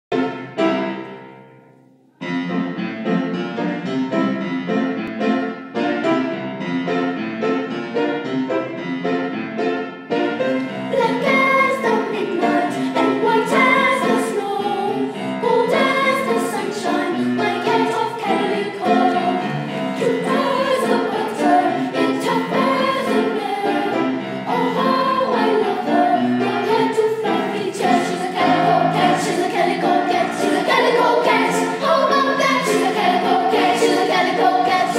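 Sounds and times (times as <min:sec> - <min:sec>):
girls choir singing: 0:10.6 - 0:34.9.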